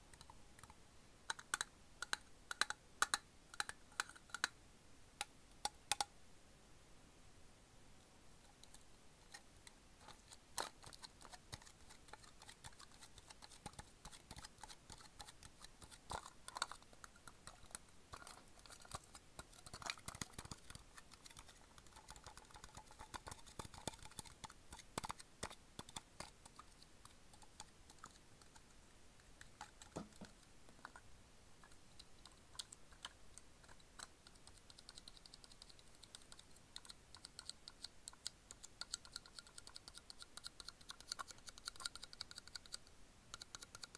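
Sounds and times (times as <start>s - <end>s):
fingers tapping metal tin: 10.1s - 28.6s.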